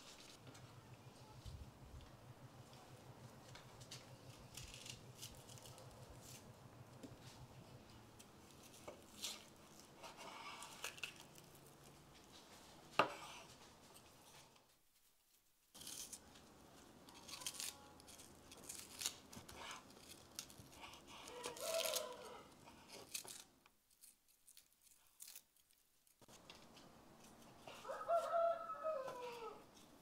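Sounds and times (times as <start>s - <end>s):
rooster crowing: 21.2s - 22.5s, 27.7s - 29.6s.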